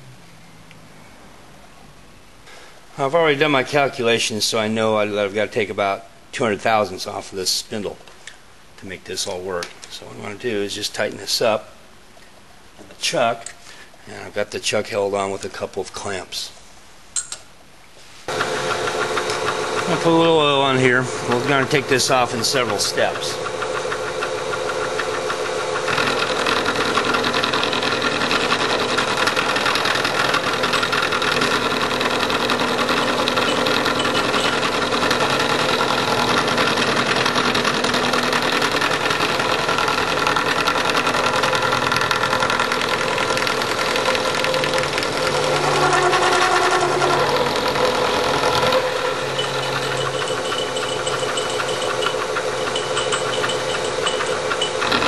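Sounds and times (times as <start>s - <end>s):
milling machine cutting metal: 18.3s - 55.0s.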